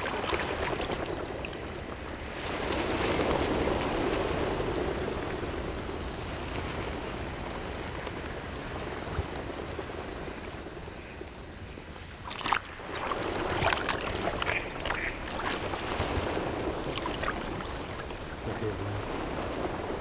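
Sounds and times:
water sloshing around legs: 0.0s - 1.6s, 12.2s - 18.4s
ducks quacking: 14.1s - 15.8s.

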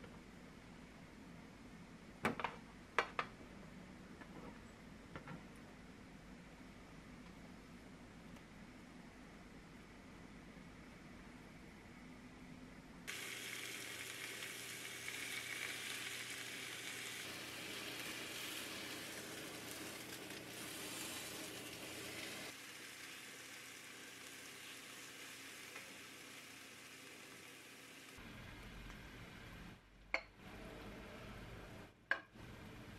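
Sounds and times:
beef sizzling in a hot pan: 13.1s - 28.2s.

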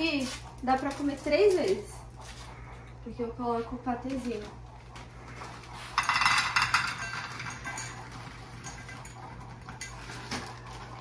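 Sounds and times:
kibble rattling into metal bowl: 6.0s - 10.5s.

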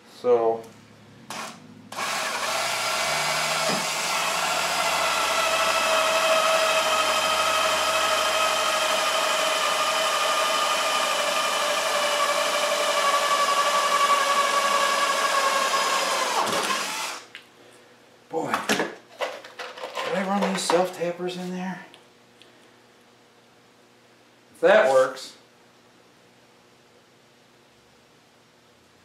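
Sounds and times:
cordless drill boring through pipe: 1.3s - 17.3s.

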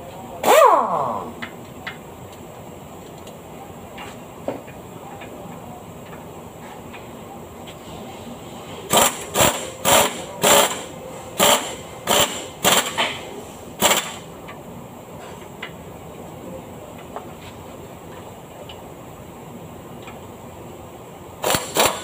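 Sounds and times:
air tool bursts: 0.4s - 1.0s, 8.9s - 13.2s, 13.8s - 14.3s, 21.4s - 22.0s.

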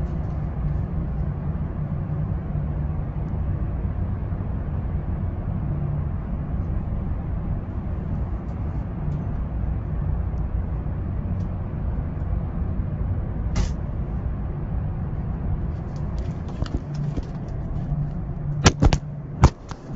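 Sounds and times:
car idling rumble: 13.4s - 19.9s
phone handling clicks and knocks: 16.2s - 17.6s, 18.6s - 19.9s.

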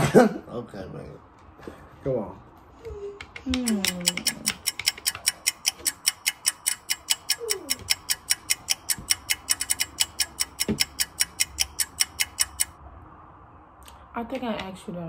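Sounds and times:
toy lie detector ticking: 3.6s - 12.8s.

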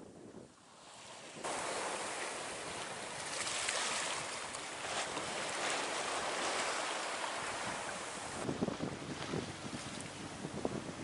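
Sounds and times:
wind: 0.0s - 11.0s
waves rushing and splashing: 0.6s - 11.0s.

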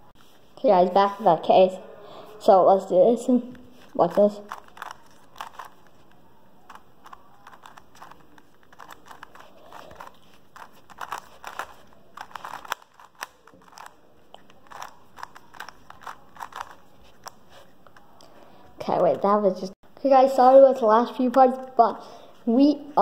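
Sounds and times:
puzzle cube layers clicking: 3.5s - 18.3s.

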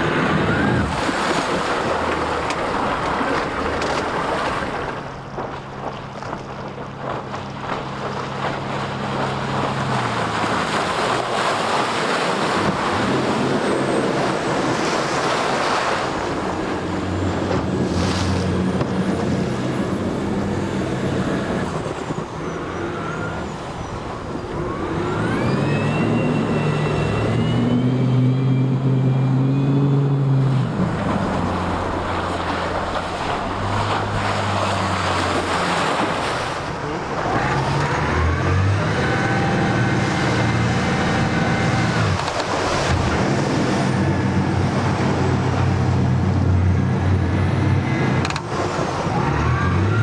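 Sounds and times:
outboard engine revving: 0.0s - 50.0s
rushing water and spray: 0.0s - 50.0s
rising whine: 12.6s - 36.4s.

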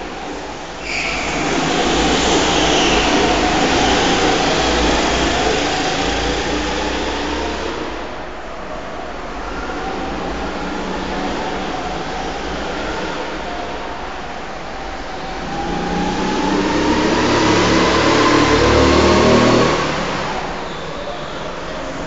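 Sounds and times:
go-kart engines passing: 0.0s - 22.0s.

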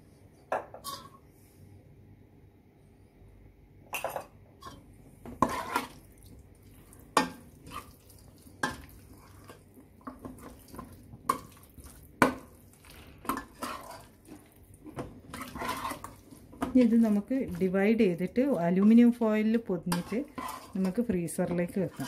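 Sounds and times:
metal spoon scraping a pot: 0.7s - 1.2s, 5.4s - 6.0s, 13.2s - 14.2s, 15.0s - 16.2s, 19.8s - 22.0s.

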